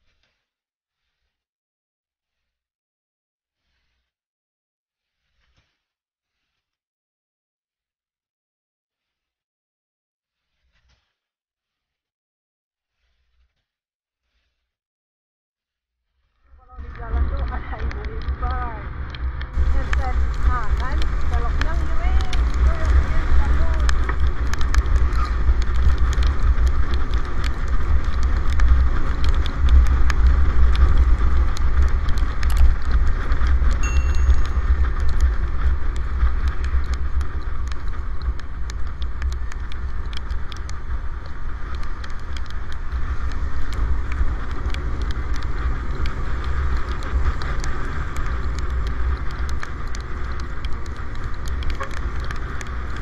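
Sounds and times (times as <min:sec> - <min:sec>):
raindrops ticking on camera: 0:16.6 - 0:53.0
wind buffeting microphone: 0:16.8 - 0:53.0
tyre hiss on wet road: 0:19.6 - 0:53.0.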